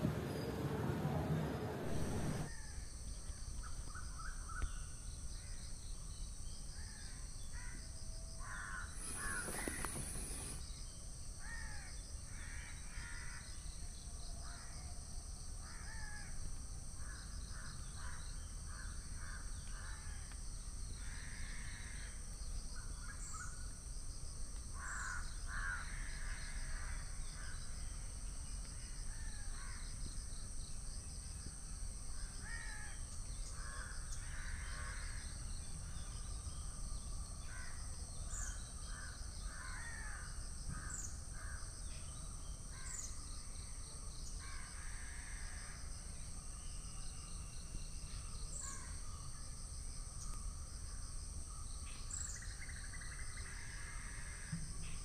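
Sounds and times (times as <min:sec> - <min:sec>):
steady high-pitched whine: 0:00.0 - 0:06.9, 0:08.4 - 0:10.9
birds cawing: 0:08.4 - 0:10.6.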